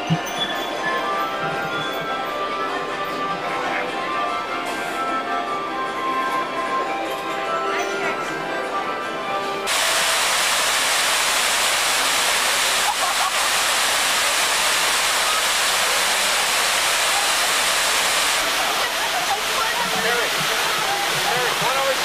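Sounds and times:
fountain water splashing: 9.7s - 22.0s.

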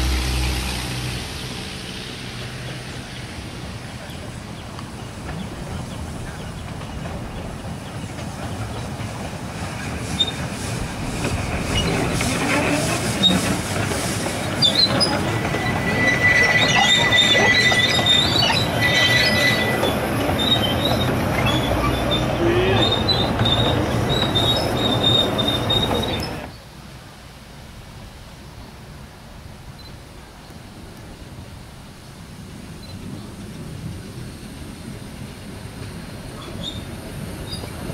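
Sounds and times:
miniature steam train passing: 0.0s - 27.0s, 28.0s - 37.9s
high wheel squeal: 11.6s - 26.5s, 36.4s - 37.8s.

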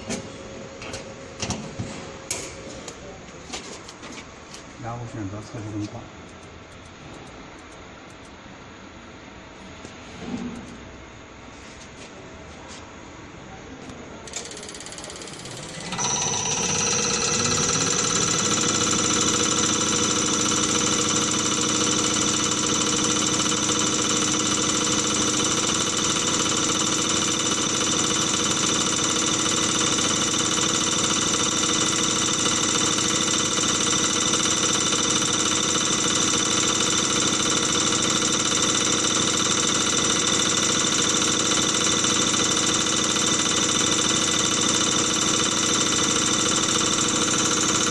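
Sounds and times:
motor spinning up with high whine: 14.3s - 47.9s.

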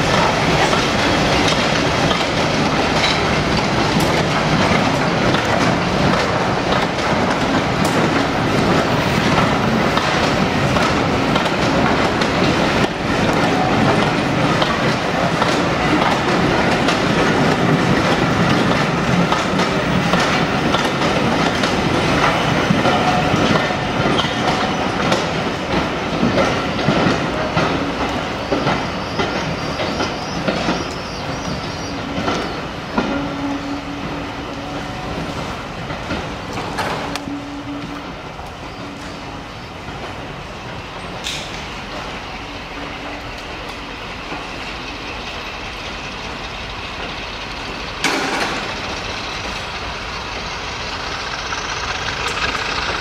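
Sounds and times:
diesel locomotives working hard: 0.0s - 53.0s
train wheels clattering over rail joints: 0.0s - 53.0s.

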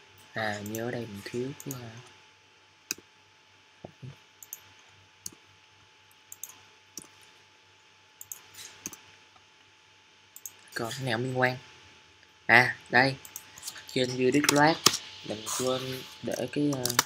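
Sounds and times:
faint low hum: 0.0s - 17.0s
computer mouse clicks: 4.4s - 5.4s, 6.3s - 7.2s, 8.2s - 9.0s, 10.4s - 10.7s, 13.2s - 13.8s.

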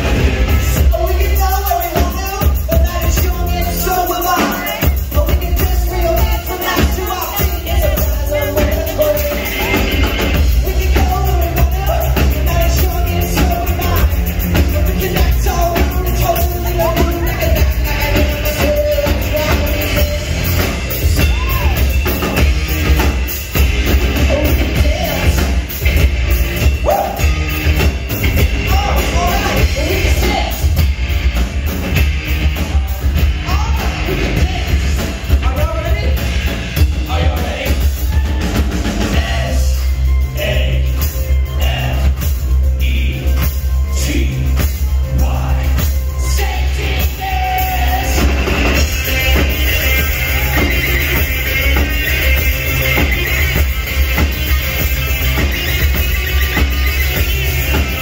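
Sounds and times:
drum kit: 0.0s - 58.0s
man singing: 0.8s - 21.9s, 24.2s - 25.7s, 28.6s - 30.8s, 32.6s - 36.2s, 39.0s - 51.9s.

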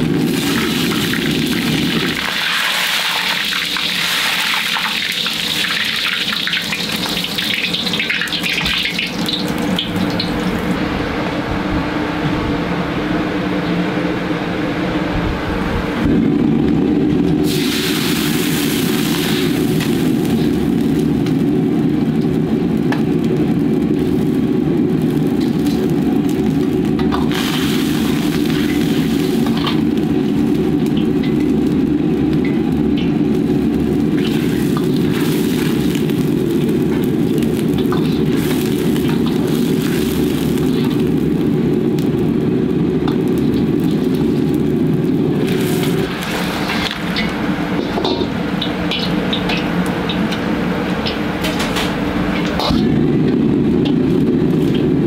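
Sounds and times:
liquid sizzling in wok: 0.0s - 10.8s, 16.5s - 55.0s
gas burner roaring: 0.0s - 55.0s
bright hiss: 17.4s - 20.8s.

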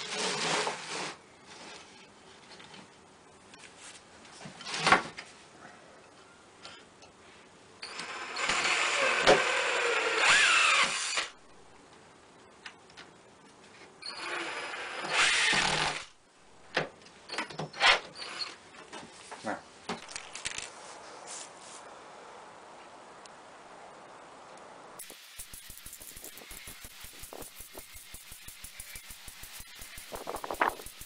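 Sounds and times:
power drill running: 7.8s - 11.3s, 14.1s - 16.1s, 25.0s - 31.0s.

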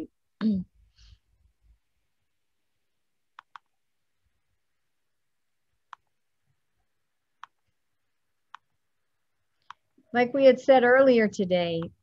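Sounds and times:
computer mouse clicking: 3.4s - 3.8s, 7.4s - 7.7s, 8.5s - 8.7s, 9.6s - 9.9s.

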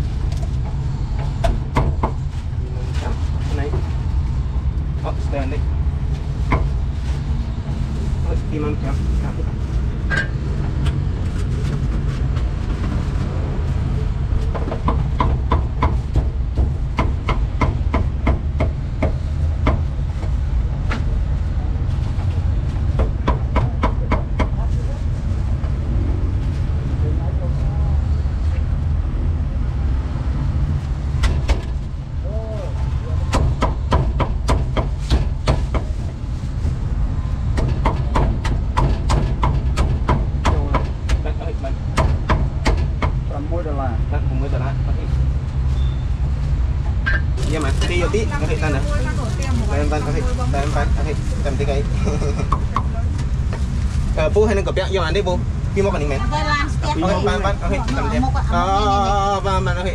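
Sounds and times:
steady low rumble: 0.0s - 59.9s
low rumble: 18.8s - 33.4s
sharp knocks and clicks: 37.6s - 41.2s, 42.0s - 43.2s.

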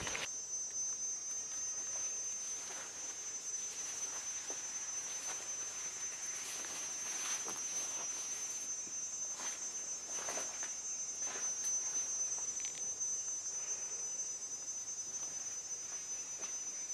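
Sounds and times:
insect trilling: 0.0s - 2.6s.

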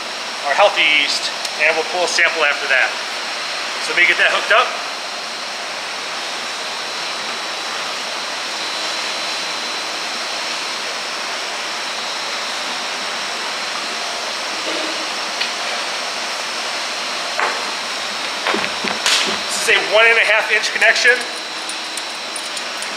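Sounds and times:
brewery equipment rushing noise: 14.4s - 22.9s
hose knocks: 18.3s - 19.9s.

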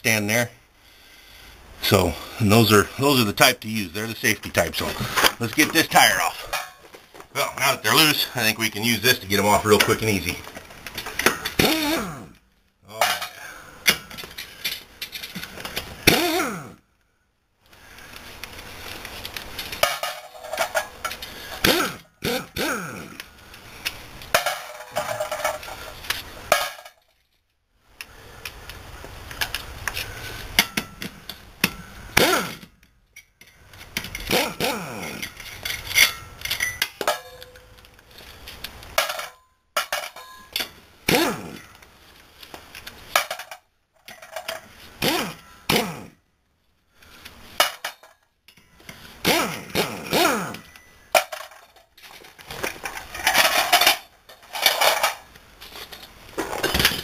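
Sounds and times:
pneumatic impact wrench bursts: 21.3s - 22.4s, 32.1s - 32.7s, 34.2s - 35.2s, 41.1s - 41.6s, 45.0s - 46.2s, 49.2s - 50.7s.

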